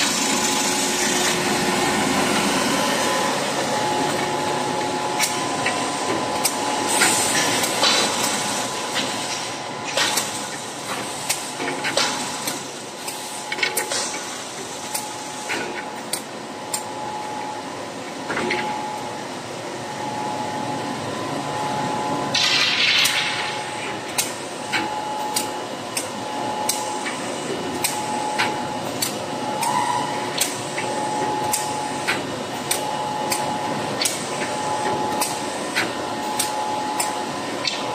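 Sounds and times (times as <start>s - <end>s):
conveyor machinery humming: 0.0s - 37.9s.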